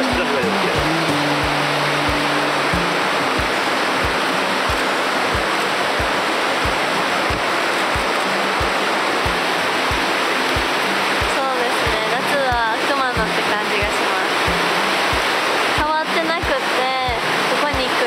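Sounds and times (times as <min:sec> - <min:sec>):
background music with low beat: 0:00.0 - 0:11.3, 0:14.5 - 0:15.9
river rushing over rocks: 0:00.0 - 0:18.0.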